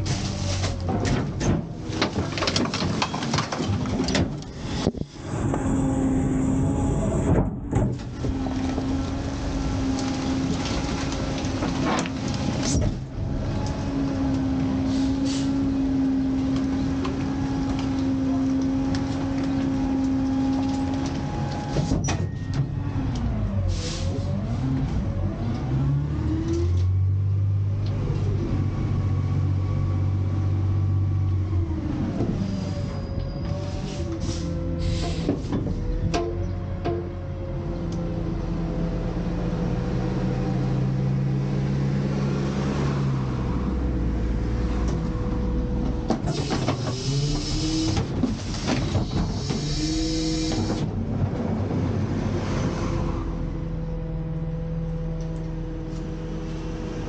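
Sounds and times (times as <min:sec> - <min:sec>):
metal clanks and crunches: 0:00.0 - 0:05.0
hydraulic whine: 0:44.9 - 0:51.0.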